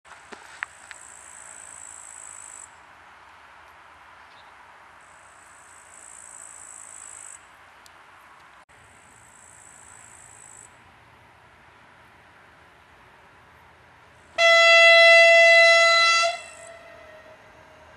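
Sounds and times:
faint outdoor background: 0.1s - 17.9s
insects chirring: 5.0s - 7.5s.

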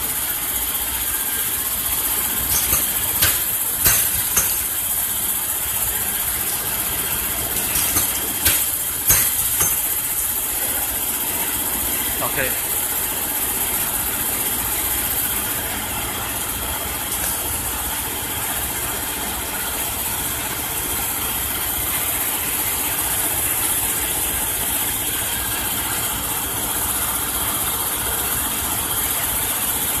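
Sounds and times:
machine hum: 0.0s - 13.3s.

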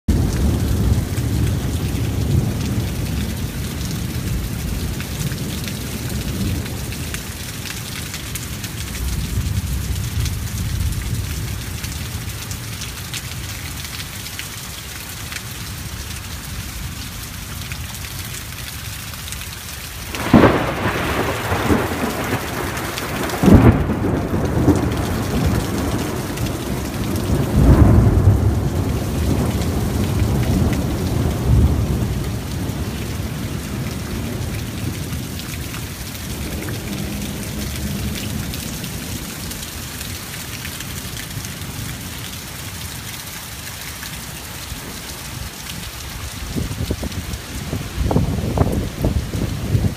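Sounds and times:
heavy rain on a street: 0.0s - 49.9s
thunder cracking and rumbling: 20.1s - 35.4s.

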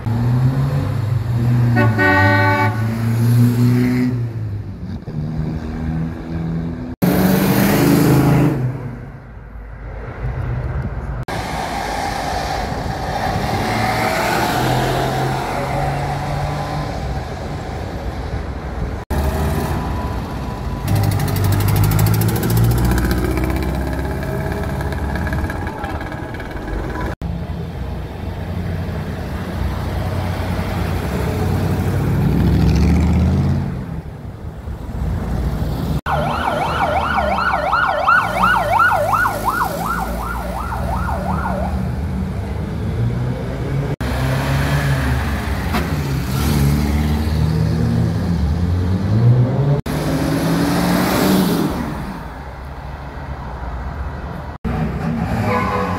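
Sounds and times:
cars driving past: 0.0s - 55.9s
police siren warbling: 36.1s - 42.0s.

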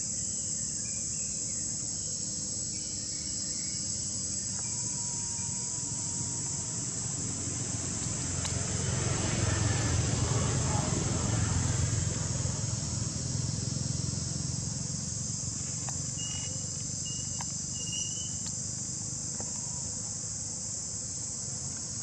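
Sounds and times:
insect chorus shrilling: 0.0s - 22.0s
faint high chirps: 16.1s - 18.5s.

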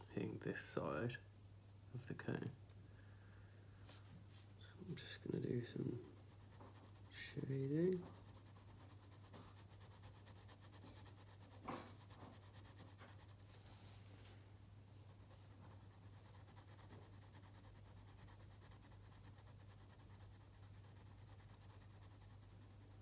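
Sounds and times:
low steady hum: 0.0s - 23.0s
pencil scratching on paper: 5.0s - 13.7s, 15.1s - 23.0s
soft knock: 11.6s - 12.0s.

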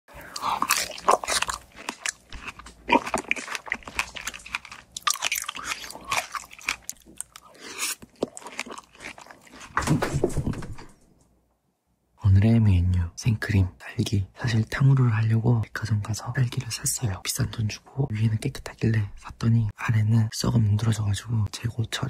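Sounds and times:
biting and chewing strawberries: 0.2s - 10.2s.

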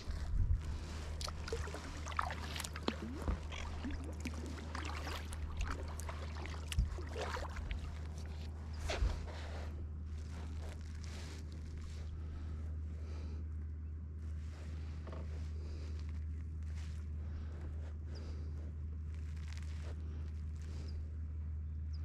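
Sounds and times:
paddle splashing water: 0.8s - 9.6s.

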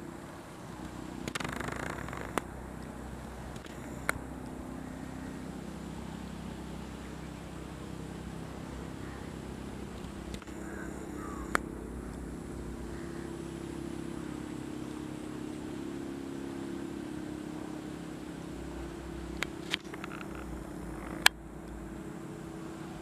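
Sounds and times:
low engine drone: 0.0s - 23.0s
sharp clicks: 0.8s - 2.9s, 3.5s - 4.6s, 10.0s - 12.2s.

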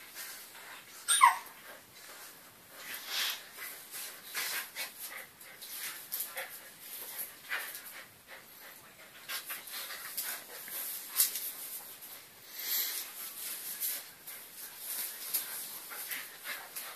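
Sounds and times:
dogs panting: 1.6s - 11.8s, 13.9s - 16.9s
dogs scuffling: 9.0s - 16.9s
claws scrabbling on tiled floor: 9.3s - 16.9s.

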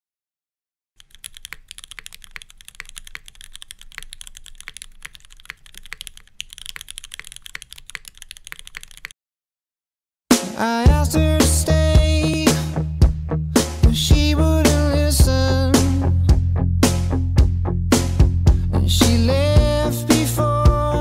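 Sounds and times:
keyboard typing clicks: 1.0s - 9.2s
loud pop music: 10.3s - 21.0s.

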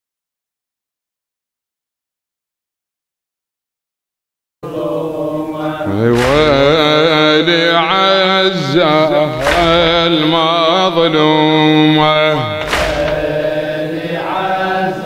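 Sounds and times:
man chanting into microphone: 5.3s - 15.0s.

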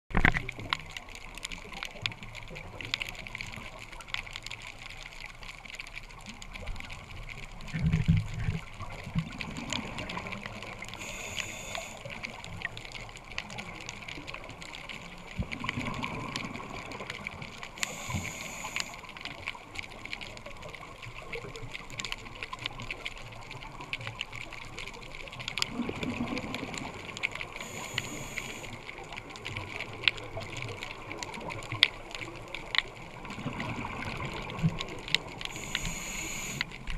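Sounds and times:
exhaled bubbles gurgling: 0.1s - 36.9s
fine underwater crackle: 0.1s - 36.9s
regulator inhale hiss: 11.0s - 12.2s, 17.8s - 19.1s, 27.6s - 28.8s, 35.5s - 36.8s.

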